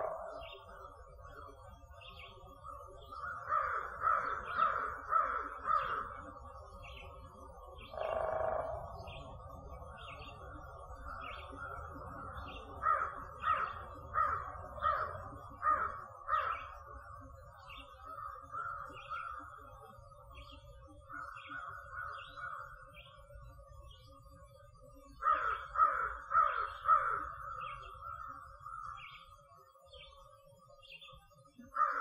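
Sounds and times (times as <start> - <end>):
crows cawing: 0.0 - 0.7, 3.1 - 6.3, 7.9 - 9.3, 11.1 - 16.9, 18.1 - 19.6, 25.2 - 29.1, 31.7 - 32.0.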